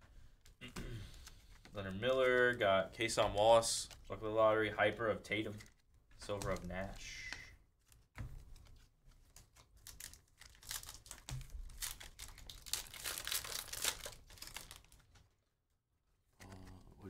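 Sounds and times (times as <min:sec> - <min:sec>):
card pack wrappers tearing and crinkling: 0:09.2 - 0:15.2.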